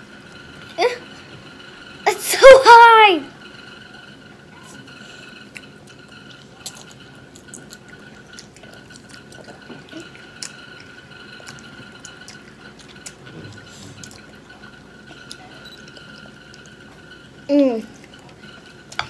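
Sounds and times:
children slurping noodles: 0:11.5 - 0:14.4.

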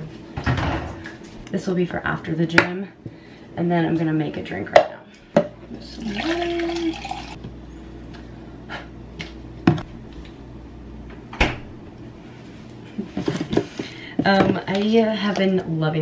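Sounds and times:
water pouring into a cup: 0:05.9 - 0:07.4
refrigerator door shutting: 0:11.3 - 0:11.7.

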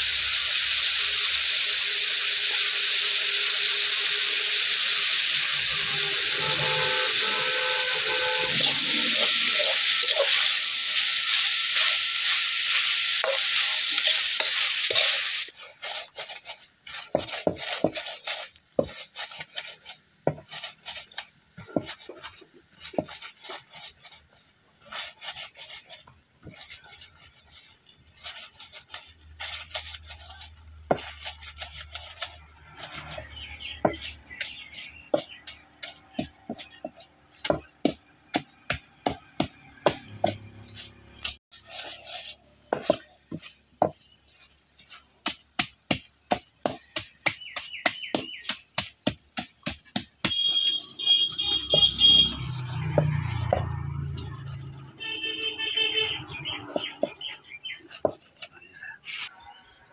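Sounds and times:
wooden masher knocking on iron pan: 0:32.7 - 0:41.4, 0:45.2 - 0:54.2.

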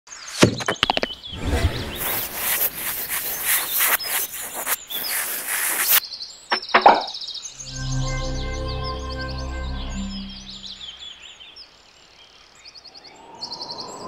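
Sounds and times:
noisy rushing hiss with pulses: 0:01.3 - 0:06.0.

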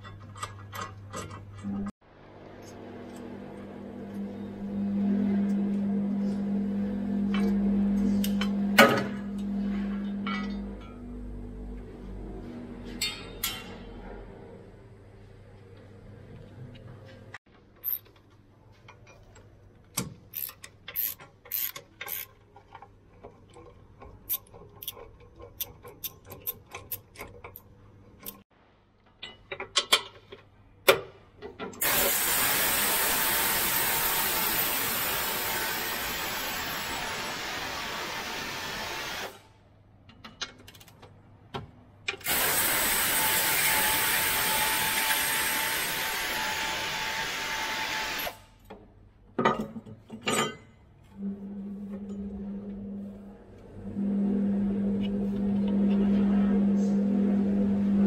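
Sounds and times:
ratchet clicking: 0:20.3 - 0:22.4.

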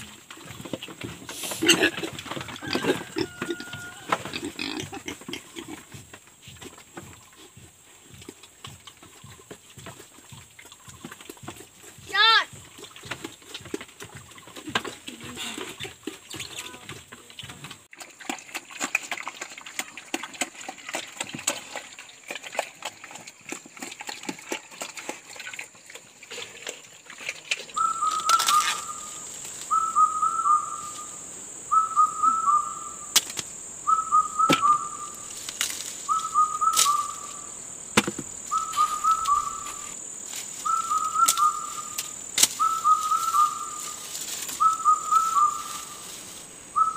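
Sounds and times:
pigs chomping at a trough: 0:00.0 - 0:27.8
two-note whistled bird call: 0:27.8 - 0:29.1, 0:29.7 - 0:31.1, 0:31.7 - 0:33.0, 0:33.8 - 0:35.2, 0:36.1 - 0:37.3, 0:38.5 - 0:39.8, 0:40.6 - 0:41.9, 0:42.6 - 0:43.8, 0:44.6 - 0:45.7.

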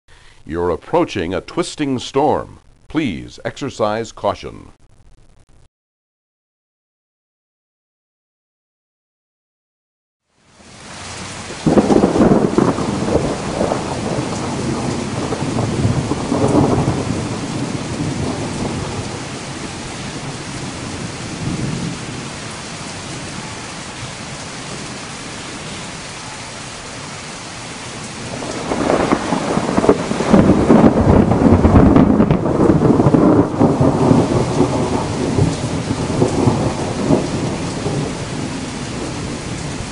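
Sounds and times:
rain hissing: 0:10.3 - 0:39.9
rolling thunder: 0:11.2 - 0:23.6, 0:28.0 - 0:39.9.

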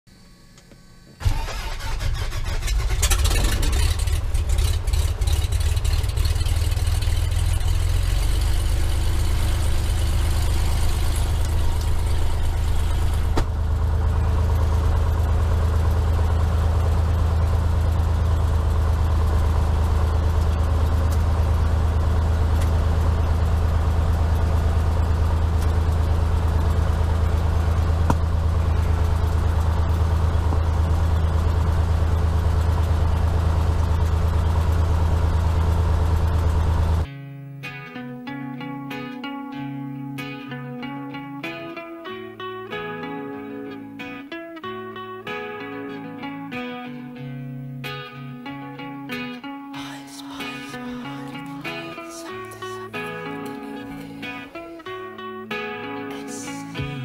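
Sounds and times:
piston aircraft engine starting and idling: 0:00.1 - 0:37.1, 0:48.4 - 0:57.0.

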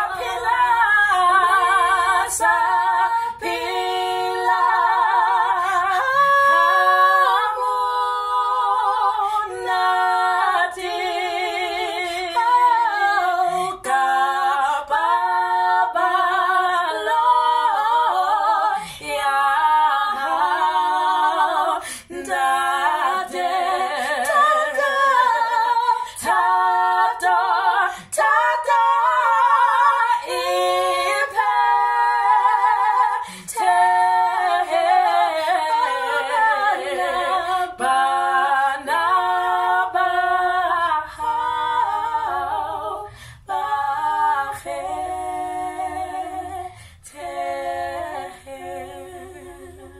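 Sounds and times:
women singing in harmony: 0:00.0 - 0:49.9
singers breathing: 0:21.8 - 0:22.1, 0:33.2 - 0:33.5, 0:43.0 - 0:43.5, 0:46.7 - 0:47.1.

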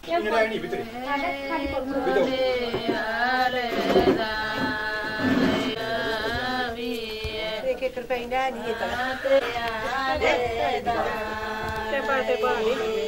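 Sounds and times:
drum strokes: 0:01.5 - 0:07.5.

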